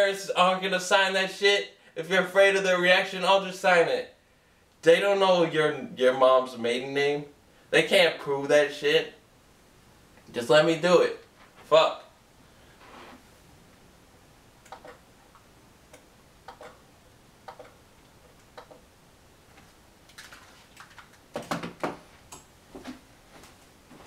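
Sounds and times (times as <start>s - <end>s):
knocks and shuffling: 11.2s - 11.8s, 18.0s - 24.0s.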